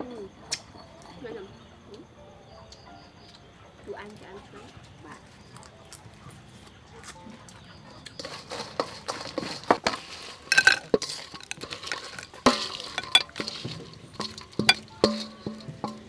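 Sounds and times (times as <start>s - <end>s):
utensil scraping metal bowl: 8.1s - 16.0s
metal bowl ringing: 10.5s - 16.0s.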